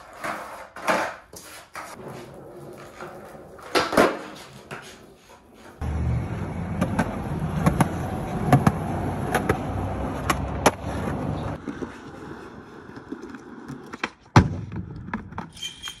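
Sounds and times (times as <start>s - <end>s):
skateboard clacks: 0.0s - 5.8s, 6.7s - 15.5s
skateboard wheels rolling on concrete: 0.0s - 16.0s
loud skateboard smack: 3.7s - 4.4s.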